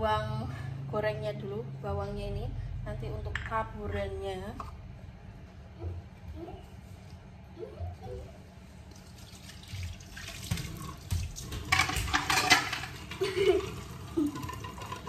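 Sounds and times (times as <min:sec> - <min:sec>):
water running from tap: 0:09.0 - 0:15.0.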